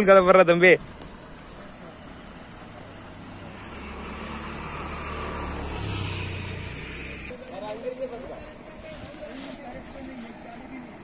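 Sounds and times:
vehicle engine droning: 1.2s - 7.4s.

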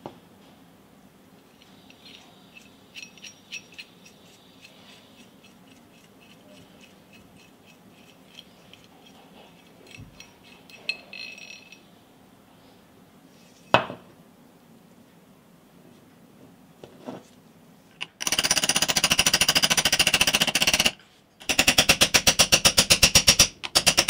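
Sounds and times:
sharp metal clink: 1.6s - 4.8s
rapid metallic ticks of knob unscrewing: 1.6s - 10.9s.

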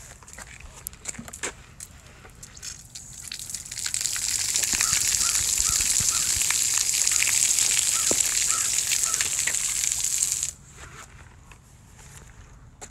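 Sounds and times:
small water splashes: 1.1s - 10.6s
fountain jets spraying water: 2.5s - 10.6s.

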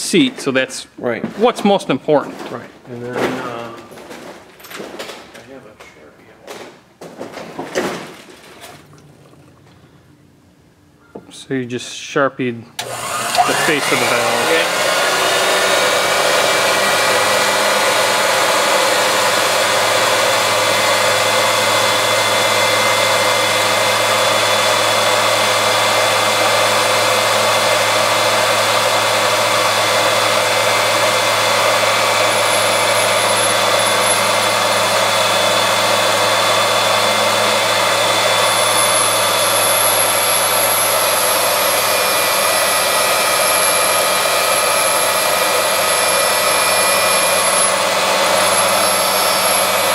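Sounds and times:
valve grinding machine whine: 12.8s - 49.9s.

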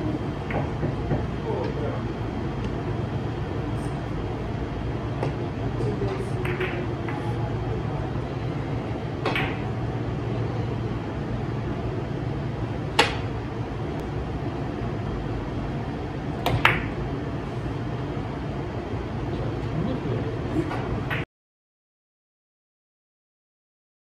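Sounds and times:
steady background hum: 0.0s - 21.3s
billiard balls clacking: 0.1s - 1.8s, 5.1s - 7.4s, 9.2s - 9.8s, 12.9s - 13.4s, 16.4s - 17.0s.

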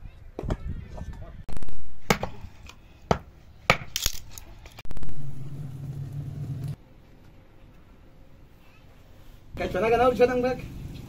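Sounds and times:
low steady hum: 4.9s - 8.4s.

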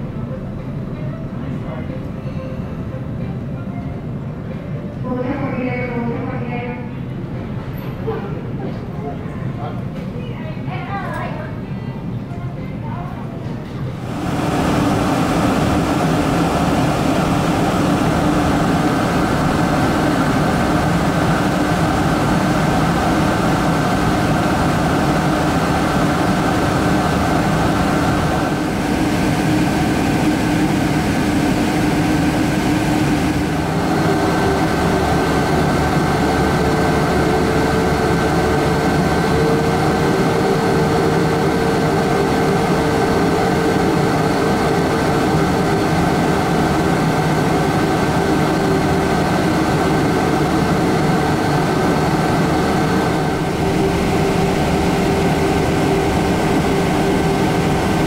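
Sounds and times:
jet engine drone in cabin: 13.8s - 58.0s.

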